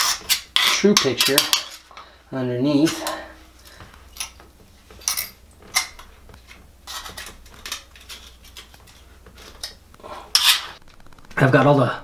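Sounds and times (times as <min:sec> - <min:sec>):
metal tool scraping wax: 0:00.0 - 0:02.0, 0:05.0 - 0:10.8.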